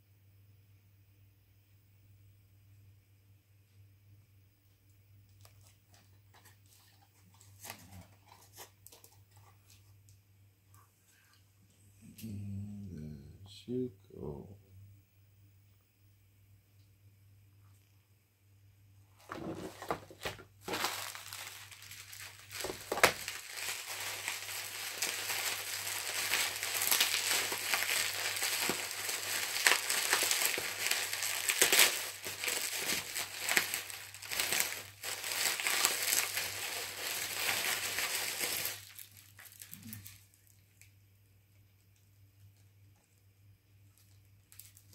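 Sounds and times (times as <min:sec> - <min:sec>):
bubble wrap crinkling: 0:05.3 - 0:10.0, 0:19.2 - 0:40.9, 0:43.8 - 0:44.9.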